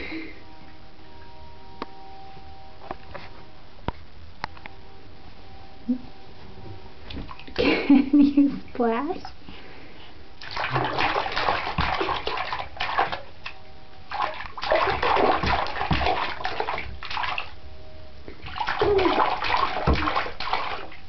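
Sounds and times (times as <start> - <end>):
baby splashing bathwater: 10.4 - 17.6, 18.4 - 21.0.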